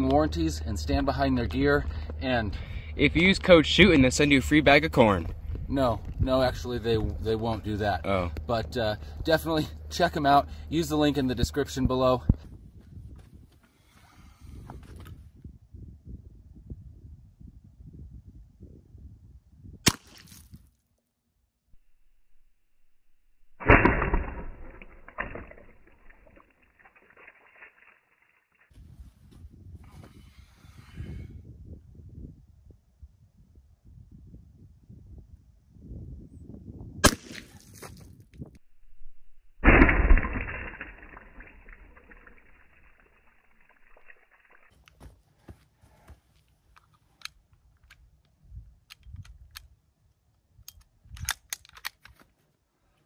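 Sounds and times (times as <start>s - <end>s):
wind rumble on microphone: 0.0s - 20.7s, 28.7s - 39.4s, 48.4s - 49.8s, 50.5s - 51.5s
water sloshing and crackle: 23.8s - 28.7s, 39.7s - 44.8s
air pistol metallic clicks: 48.8s - 49.8s, 50.6s - 52.2s.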